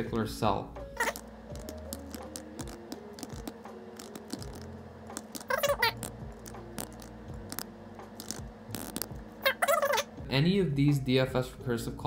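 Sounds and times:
high-pitched wavering cry: 9.4s - 10.1s.

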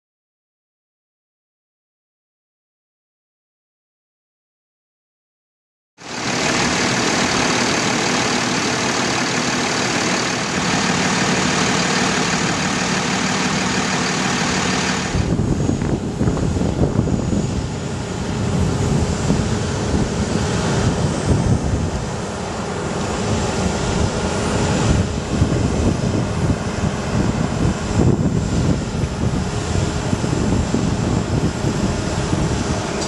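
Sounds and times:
truck engine idling: 6.0s - 16.2s
engine hiss: 6.0s - 33.0s
wind buffeting microphone: 10.4s - 33.0s.

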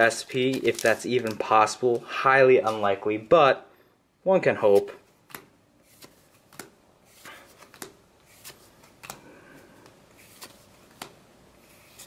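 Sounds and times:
trading cards snapping: 5.3s - 11.2s.

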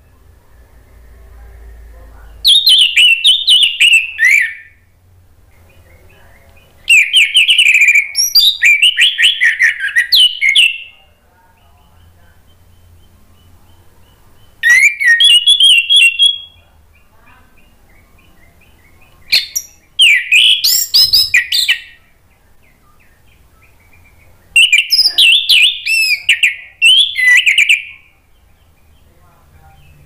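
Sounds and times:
thrush singing whistled phrases: 2.5s - 4.8s, 6.9s - 11.0s, 12.4s - 16.6s, 18.2s - 22.0s, 23.6s - 28.2s.

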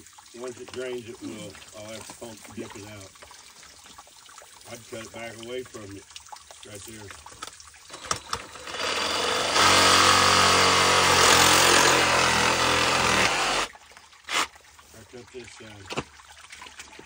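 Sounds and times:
reciprocating saw cutting pipe: 8.4s - 13.7s, 14.3s - 14.5s.

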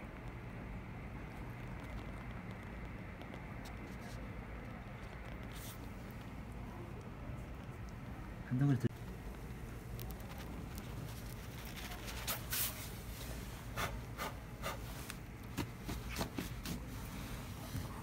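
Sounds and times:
cat chewing and smacking: 0.1s - 8.2s, 8.9s - 12.3s.

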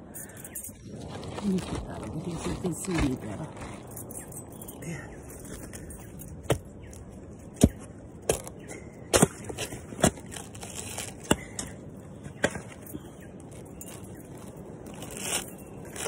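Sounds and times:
pruning shears cutting coconut husk: 7.5s - 12.8s.

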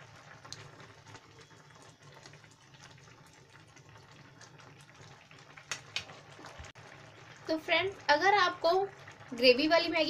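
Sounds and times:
noodles simmering in broth: 0.0s - 10.0s.

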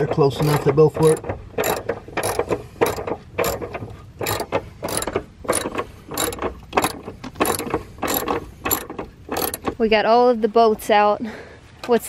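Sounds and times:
socket ratchet clicking: 0.4s - 9.8s.

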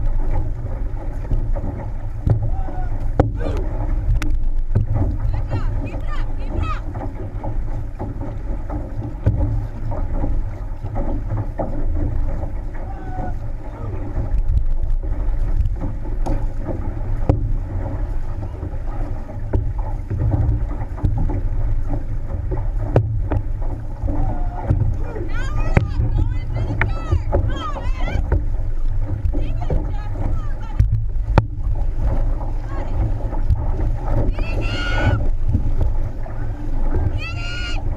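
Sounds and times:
water rushing along a hull: 0.0s - 37.9s
wind rumbling on microphone: 0.0s - 37.9s
sharp knocks: 1.3s - 12.5s.

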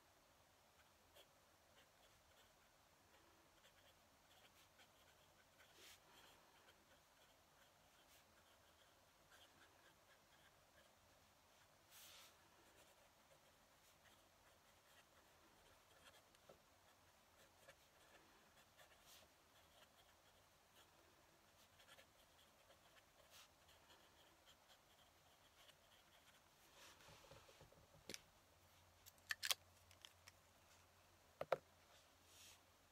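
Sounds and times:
pen nib scratching on paper: 0.8s - 11.0s, 11.6s - 26.5s.

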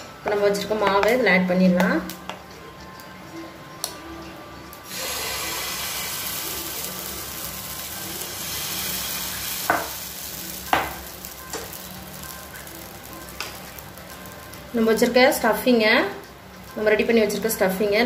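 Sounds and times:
batter sizzling in hot oil: 4.8s - 18.0s.

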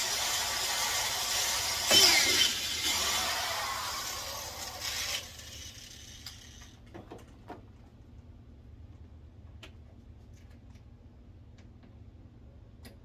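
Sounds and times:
screws and washers clicking: 0.0s - 6.8s.

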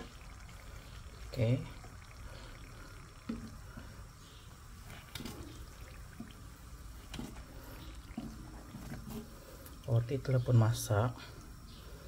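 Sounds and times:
hot oil sizzling and bubbling: 0.0s - 12.0s.

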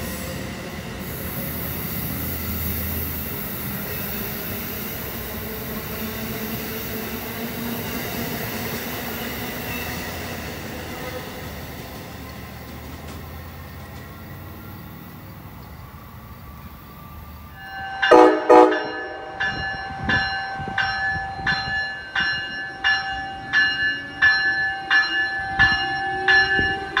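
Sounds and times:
train rumbling: 0.0s - 27.0s
locomotive bell ringing: 17.1s - 27.0s
train horn toots: 17.9s - 20.8s.

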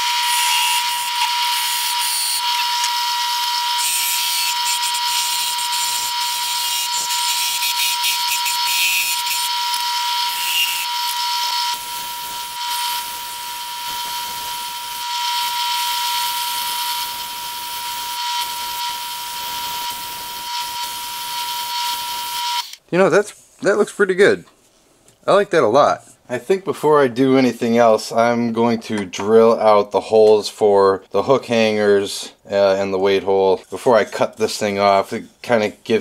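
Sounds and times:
wood lathe whining: 0.0s - 22.8s.

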